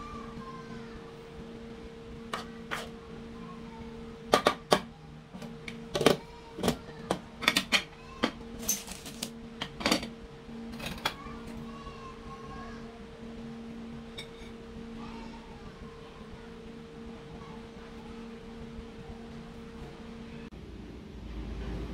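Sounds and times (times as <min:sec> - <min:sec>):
low hum: 0:08.3 - 0:21.9.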